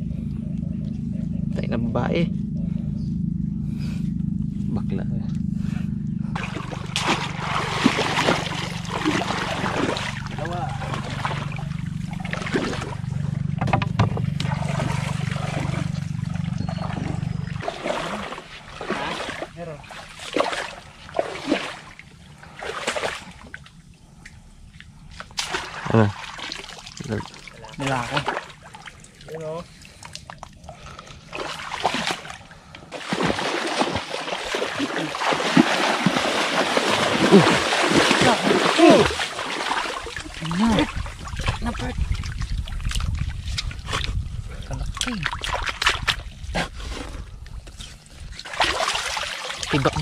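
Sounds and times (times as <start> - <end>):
small motor droning: 0.0 - 18.6
water splashing: 6.4 - 23.7, 25.3 - 47.2, 48.3 - 50.0
bamboo traps knocking: 13.6 - 14.3.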